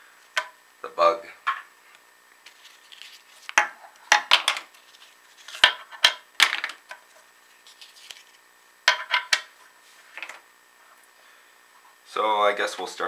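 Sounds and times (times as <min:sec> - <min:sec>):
knives clattering on wooden table: 0:08.9 - 0:09.5.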